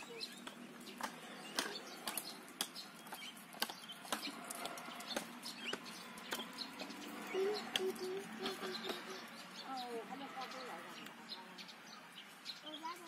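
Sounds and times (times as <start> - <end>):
small birds chirping: 0.0 - 13.0
chickens clucking: 4.2 - 10.6.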